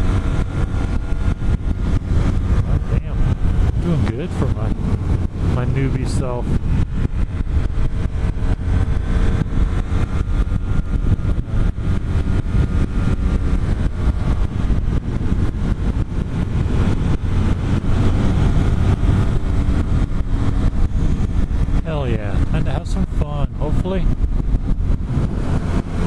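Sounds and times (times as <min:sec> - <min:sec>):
motorcycle engine running: 0:00.0 - 0:26.0
wind buffeting microphone: 0:00.0 - 0:26.0.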